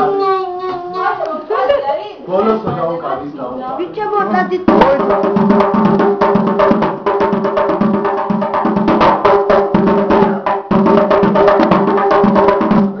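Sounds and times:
music with fast percussion beat: 0:04.4 - 0:13.0.

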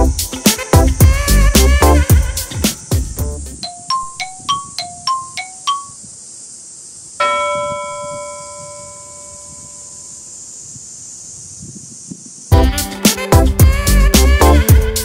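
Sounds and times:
steady high hiss: 0:00.0 - 0:15.0
chime ringing out: 0:03.6 - 0:06.0, 0:07.2 - 0:10.2
mallet percussion plinks: 0:03.6 - 0:06.0.

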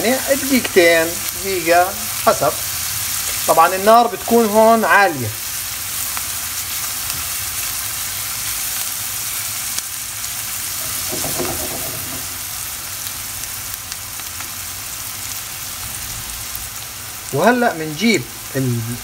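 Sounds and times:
vegetables sizzling in a frying pan: 0:00.0 - 0:19.0
spatula stirring: 0:10.7 - 0:12.4.

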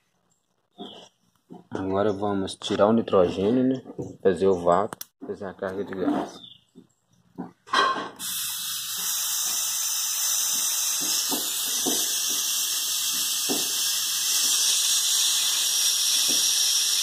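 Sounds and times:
pressurized gas hissing: 0:08.2 - 0:17.0.

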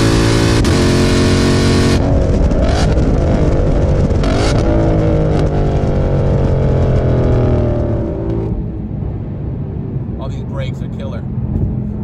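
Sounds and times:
car engine accelerating hard: 0:00.0 - 0:09.3.

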